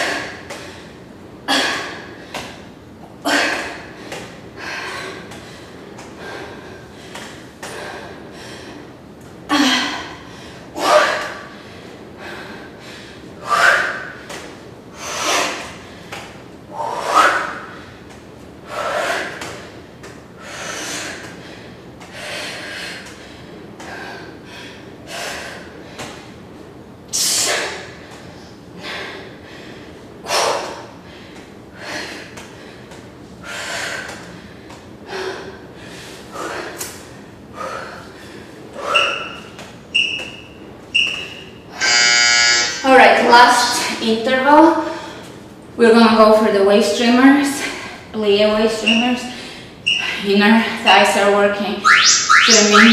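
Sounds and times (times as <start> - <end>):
woman breathing hard: 0.0 - 26.4, 27.2 - 39.6, 44.8 - 45.4, 49.2 - 50.8.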